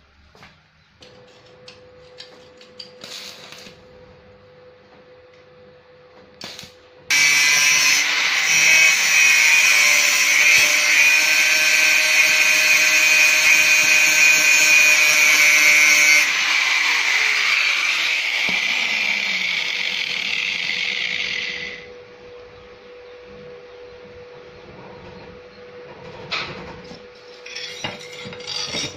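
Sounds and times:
angle grinder grinding steel: 0:07.1 - 0:21.9.

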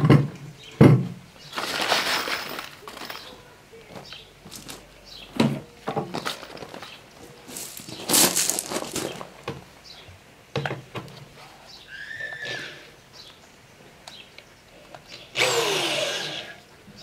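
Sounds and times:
wooden boards knocking: 0:00.0 - 0:01.2
footsteps crunching on gravel: 0:01.5 - 0:05.2, 0:06.1 - 0:09.4.

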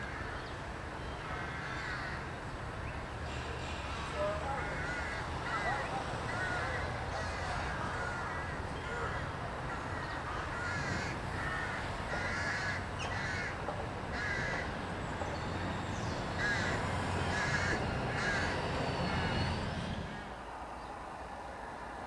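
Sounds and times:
road traffic rumble: 0:00.0 - 0:22.0
crows cawing: 0:01.2 - 0:02.4, 0:04.6 - 0:14.8, 0:15.4 - 0:20.2.

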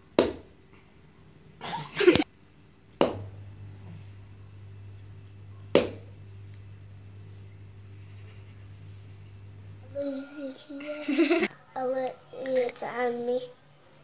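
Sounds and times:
low steady hum: 0:00.0 - 0:14.0
sharp taps or slaps: 0:05.7 - 0:06.0.

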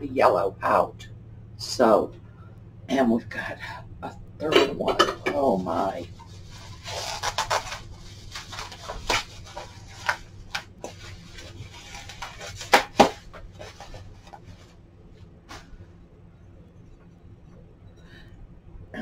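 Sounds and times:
plastic bag and bubble wrap crinkling: 0:05.4 - 0:14.8.

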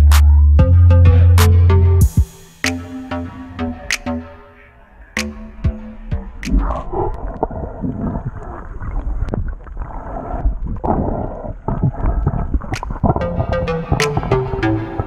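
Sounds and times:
underwater rumbling water: 0:04.7 - 0:15.0.

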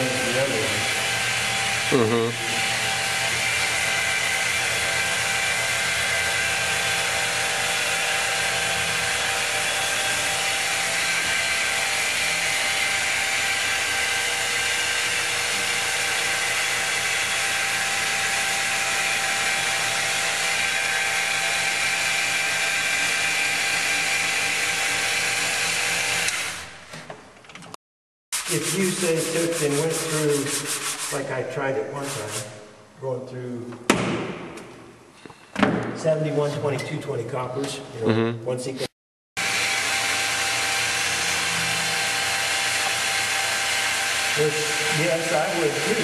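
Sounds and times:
electric polisher whining: 0:00.0 - 0:26.6, 0:39.4 - 0:46.0.

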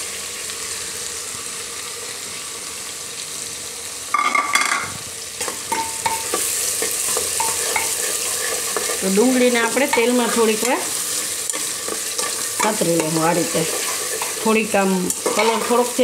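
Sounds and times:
onions sizzling in hot oil: 0:00.0 - 0:16.0
spoon clinking against pot: 0:05.7 - 0:08.1.

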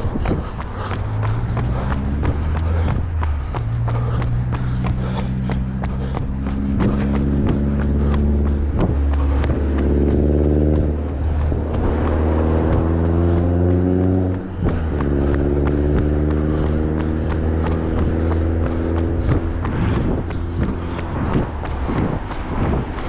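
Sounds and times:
bus diesel engine running: 0:00.0 - 0:23.0.

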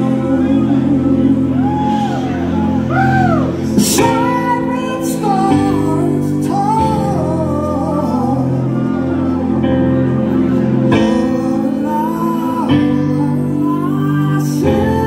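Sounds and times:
man singing a slow ballad: 0:00.0 - 0:02.4, 0:03.6 - 0:09.1, 0:10.9 - 0:15.0
keyboard playing held chords: 0:00.0 - 0:15.0.

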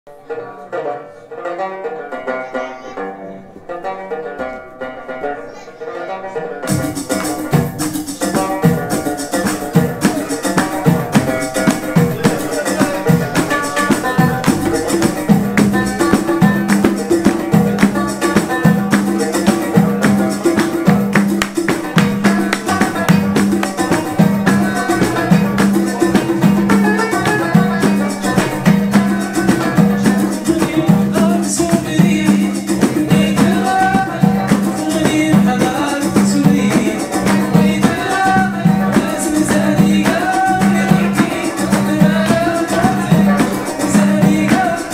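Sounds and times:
banjo melody: 0:00.1 - 0:44.9
electronic keyboard melody: 0:06.7 - 0:31.7
frame drum beat: 0:06.7 - 0:44.9
rattling percussion: 0:06.7 - 0:44.9.

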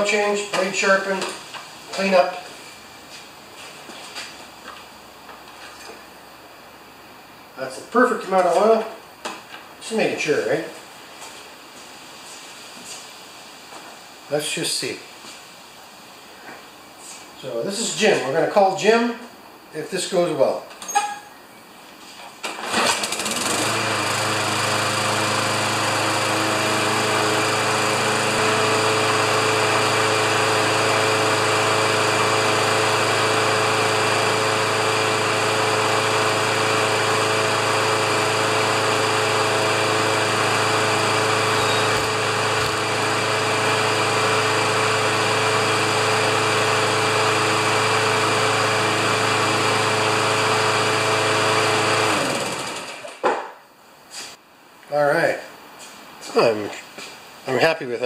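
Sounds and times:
lawn mower engine starting and running: 0:00.0 - 0:04.8, 0:22.4 - 0:53.2.

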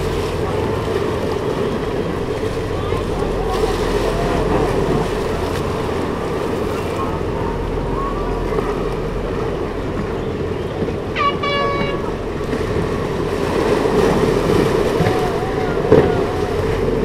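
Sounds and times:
surf lapping: 0:00.0 - 0:17.0
wind: 0:00.0 - 0:17.0
short high call: 0:11.2 - 0:12.2.

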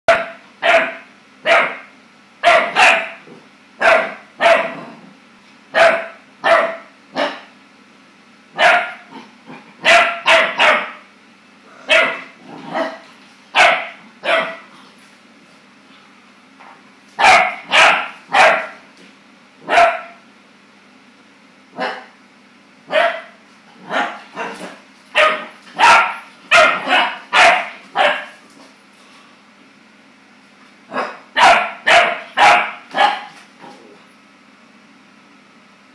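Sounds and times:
puppy barking: 0:00.1 - 0:04.9, 0:05.7 - 0:07.5, 0:08.6 - 0:09.2, 0:09.8 - 0:11.0, 0:11.8 - 0:14.7, 0:17.2 - 0:18.8, 0:19.6 - 0:20.2, 0:21.8 - 0:22.2, 0:22.9 - 0:28.4, 0:30.9 - 0:33.4.

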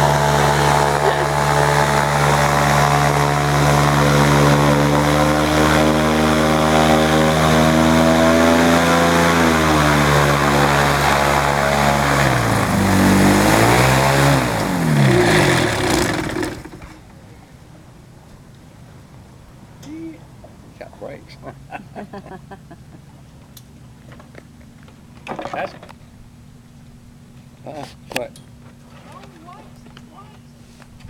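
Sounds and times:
propeller engine running: 0:00.0 - 0:18.2.

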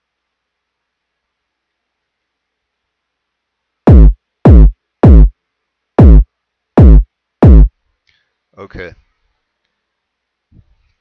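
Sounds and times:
kick drum thumps: 0:03.9 - 0:05.3, 0:06.0 - 0:07.7.

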